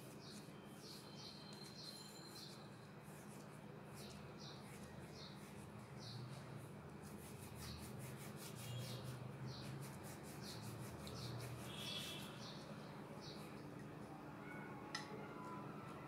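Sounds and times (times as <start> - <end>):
hand rubbing dough on wood: 3.0 - 12.6.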